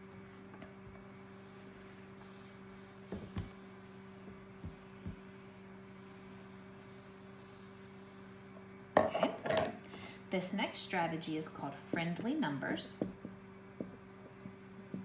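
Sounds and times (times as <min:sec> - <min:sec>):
steady low hum: 0:00.0 - 0:15.0
eraser thumping and wiping whiteboard: 0:00.3 - 0:08.6.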